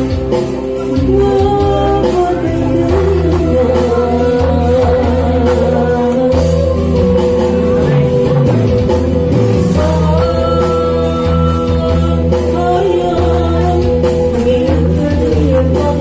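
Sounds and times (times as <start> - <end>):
backing music with bass: 0.0 - 16.0
man singing through pa: 1.0 - 16.0.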